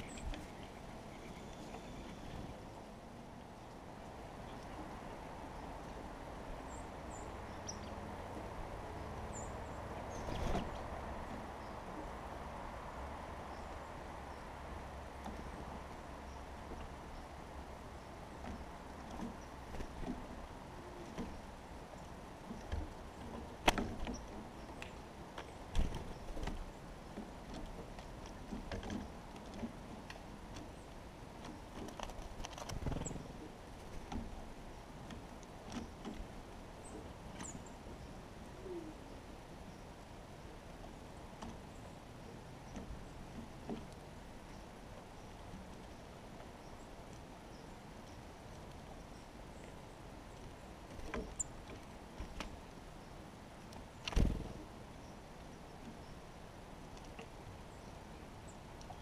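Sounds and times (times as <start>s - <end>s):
low wind rumble: 0.0s - 59.0s
birds pecking at seed feeder: 3.4s - 38.5s
birds landing with dull thumps: 10.2s - 11.5s, 18.2s - 21.6s, 22.4s - 38.0s, 42.6s - 44.4s, 50.4s - 52.9s, 53.6s - 54.8s
bird wings fluttering: 31.8s - 34.1s, 54.0s - 54.7s.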